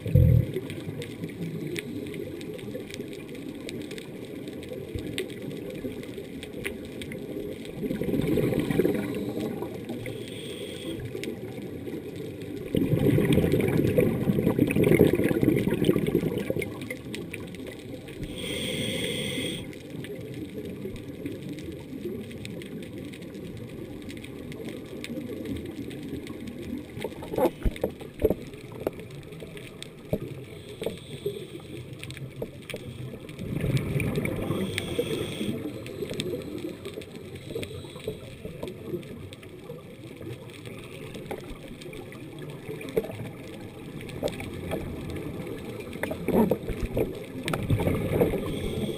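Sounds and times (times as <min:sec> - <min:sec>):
diver exhaling bubbles underwater: 0:00.0 - 0:01.0, 0:07.8 - 0:10.0, 0:12.6 - 0:17.0, 0:33.4 - 0:35.7, 0:46.0 - 0:48.9.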